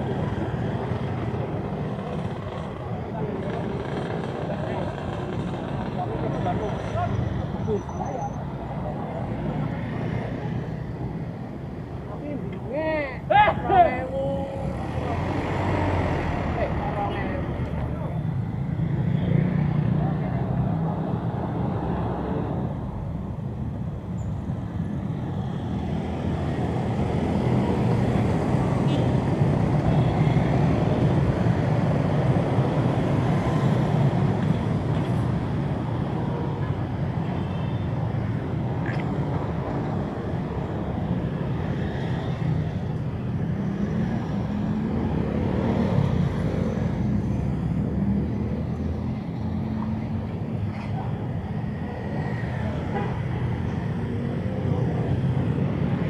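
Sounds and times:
cars driving past: 0:00.0 - 0:23.8, 0:24.6 - 0:56.0
road traffic rumble: 0:00.0 - 0:56.0
motorbike passing: 0:13.8 - 0:21.0.

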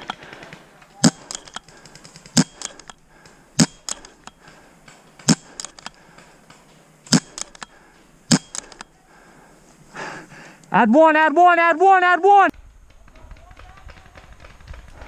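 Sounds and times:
distant paintball shots: 0:00.0 - 0:08.8, 0:12.6 - 0:15.0
paintball marker shots: 0:01.0 - 0:03.0, 0:05.2 - 0:06.1, 0:07.1 - 0:07.7.

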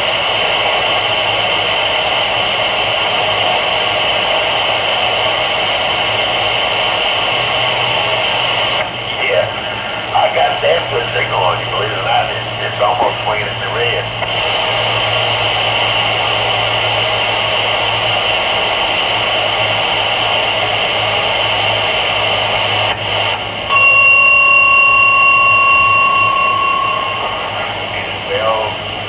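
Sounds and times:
radio static hiss: 0:00.0 - 0:29.0
two-pitch whistle from speaker: 0:23.7 - 0:27.5.

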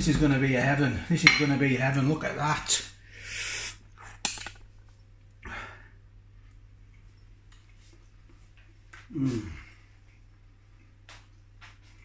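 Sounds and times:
steady low hum: 0:00.0 - 0:12.0
man breathing: 0:03.0 - 0:03.8.

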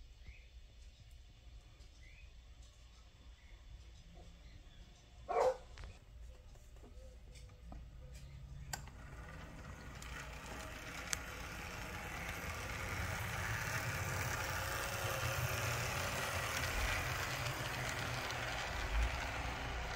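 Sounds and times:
model train rumbling on track: 0:07.8 - 0:19.9.

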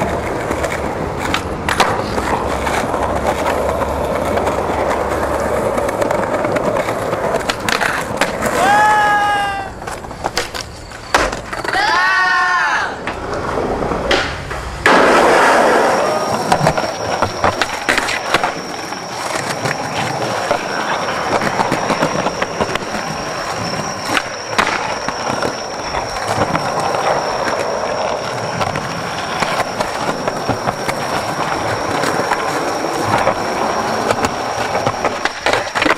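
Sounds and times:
skateboard clacks: 0:00.0 - 0:35.9
skateboard wheels rolling on concrete: 0:00.0 - 0:35.9
person shouting: 0:08.6 - 0:09.8, 0:11.7 - 0:13.0.

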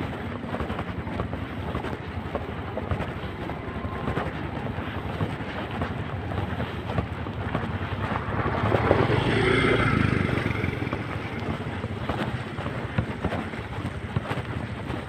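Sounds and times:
wind noise on microphone: 0:00.0 - 0:15.0
motor scooter passing: 0:01.6 - 0:15.0.

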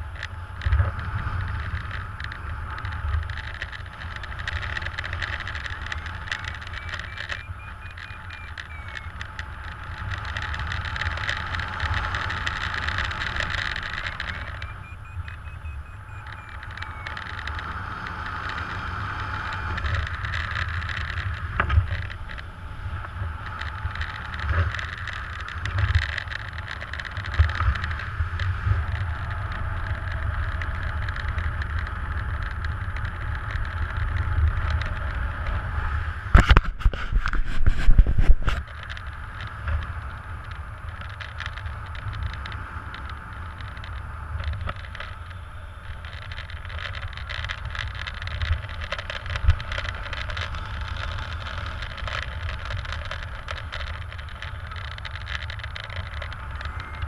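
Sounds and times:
wind rushing over microphone: 0:00.0 - 0:57.0
knocking and buffeting: 0:36.3 - 0:57.0.

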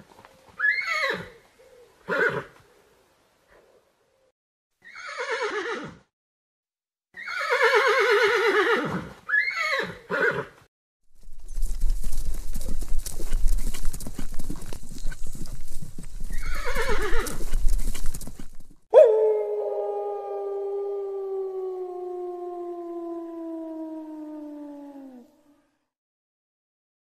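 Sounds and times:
horse whinnying: 0:00.6 - 0:01.4, 0:02.1 - 0:02.5, 0:04.8 - 0:06.0, 0:07.2 - 0:10.6, 0:16.3 - 0:17.6
hoofbeats: 0:11.2 - 0:18.8.

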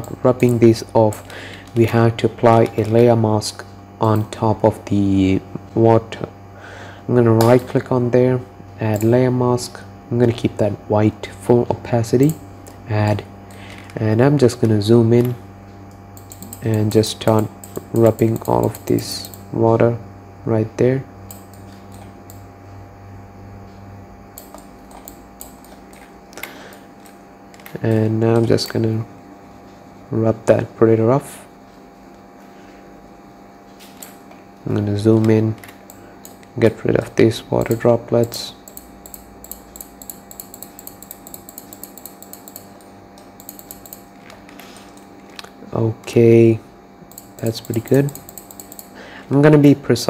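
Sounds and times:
low electrical hum: 0:00.0 - 0:50.0
computer mouse clicks: 0:16.2 - 0:16.9, 0:24.4 - 0:26.1, 0:37.6 - 0:45.5, 0:47.1 - 0:48.9.

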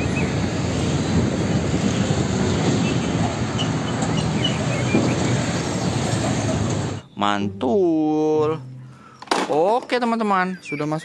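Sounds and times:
truck driving past: 0:00.0 - 0:07.1.

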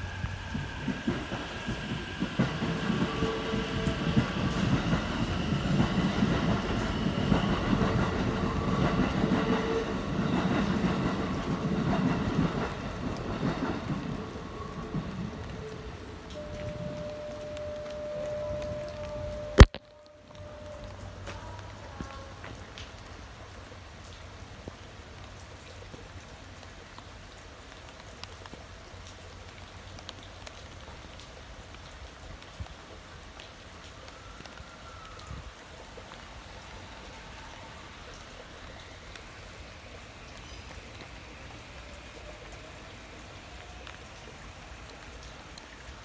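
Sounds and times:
electric train motor whine: 0:00.0 - 0:09.9, 0:16.3 - 0:19.6
steady rain: 0:00.0 - 0:46.0.

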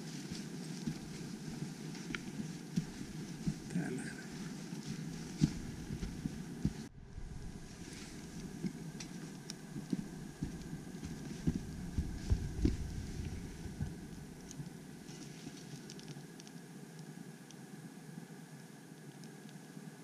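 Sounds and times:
wind rumble on microphone: 0:05.2 - 0:08.8, 0:09.6 - 0:14.4
twigs crackling in a stove: 0:07.7 - 0:17.1
low thumps on microphone: 0:09.8 - 0:14.1.

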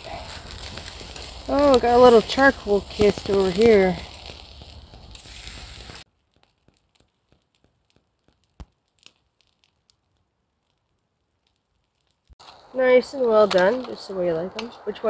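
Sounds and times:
steaks sizzling on a grill: 0:00.0 - 0:06.1
burning wood crackling and popping: 0:00.0 - 0:15.0.

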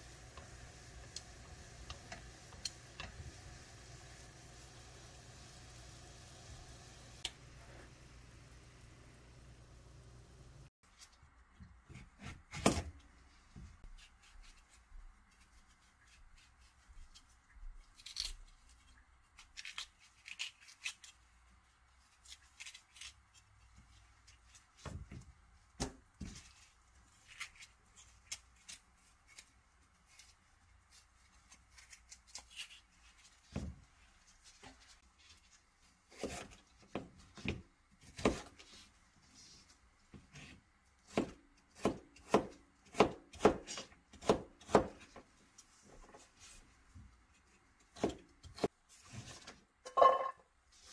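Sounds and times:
knife slicing cucumber: 0:36.1 - 0:36.6, 0:37.4 - 0:38.8, 0:40.3 - 0:45.2, 0:47.8 - 0:49.4.

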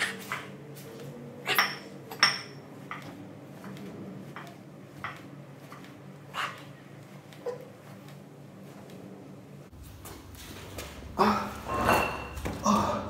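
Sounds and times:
steady low hum: 0:00.0 - 0:13.0
metal weights clinking: 0:01.4 - 0:03.1, 0:11.6 - 0:12.6.

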